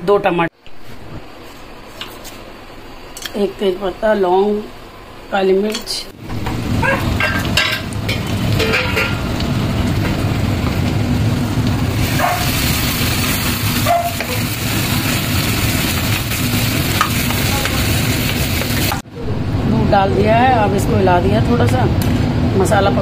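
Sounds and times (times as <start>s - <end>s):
hot oil sizzling in a pan: 6.3s - 19.0s.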